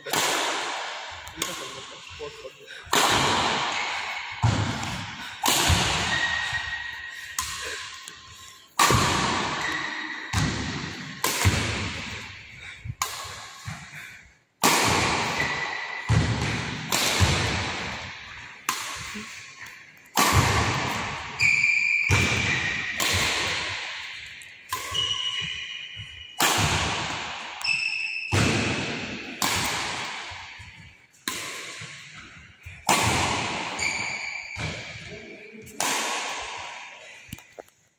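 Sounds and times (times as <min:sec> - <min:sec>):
rackets hitting shuttlecocks echoing: 0:00.0 - 0:14.0, 0:14.6 - 0:37.7.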